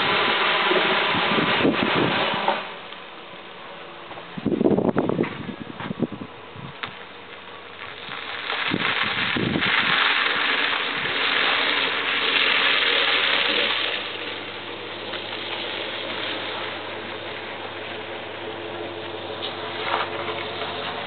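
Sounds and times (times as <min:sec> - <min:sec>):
tyres rushing on ice: 0:00.0 - 0:02.9, 0:07.6 - 0:21.0
truck engine running: 0:09.8 - 0:21.0.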